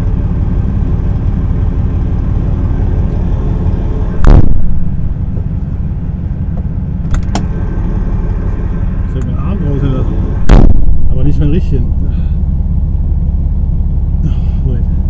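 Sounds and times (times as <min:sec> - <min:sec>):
truck engine idling: 0:00.0 - 0:15.0
loud thump: 0:04.1 - 0:05.5, 0:10.4 - 0:11.3.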